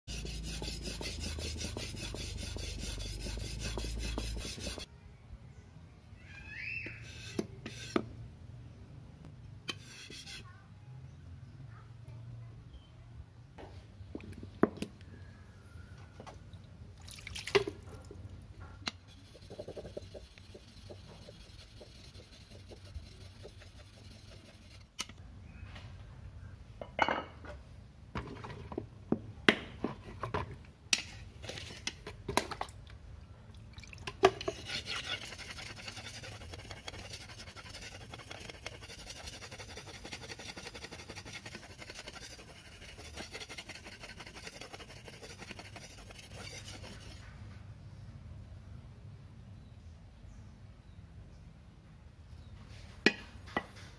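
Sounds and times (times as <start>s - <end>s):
steel scraping on whetstone: 0.1s - 4.9s, 7.0s - 8.1s, 9.7s - 10.5s, 18.9s - 25.2s, 34.4s - 47.2s.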